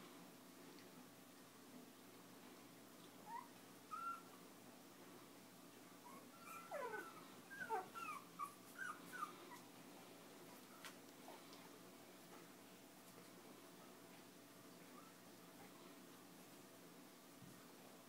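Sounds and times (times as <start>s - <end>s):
puppies whimpering and squealing: 3.3s - 4.4s, 6.0s - 9.6s.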